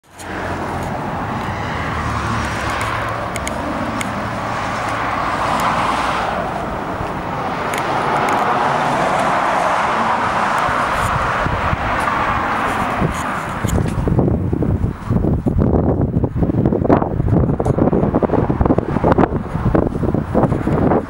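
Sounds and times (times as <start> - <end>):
low traffic rumble: 0.0 - 21.0.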